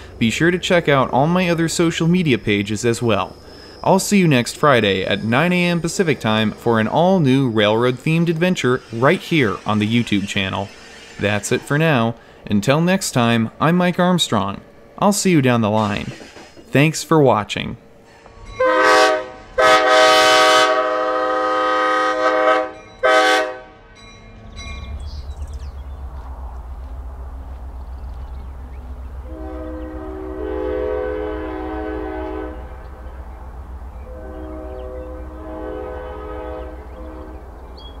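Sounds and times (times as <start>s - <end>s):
diesel engine rumbling: 0.0s - 16.9s, 23.9s - 38.0s
locomotive air horn blasts: 18.6s - 24.0s, 29.2s - 32.9s, 34.0s - 37.4s.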